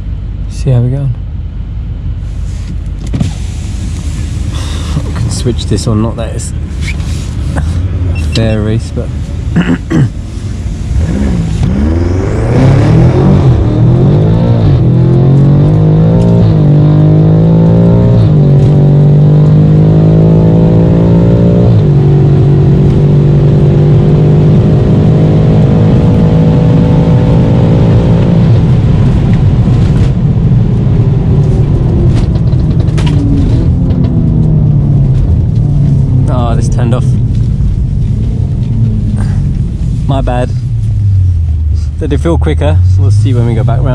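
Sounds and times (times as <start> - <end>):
car engine at full throttle: 0.0 - 43.9
car engine revs dropping: 9.6 - 28.5.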